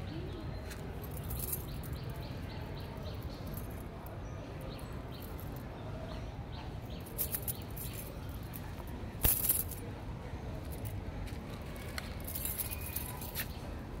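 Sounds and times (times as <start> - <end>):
cat toy clinking and jangling: 12.2 - 13.4.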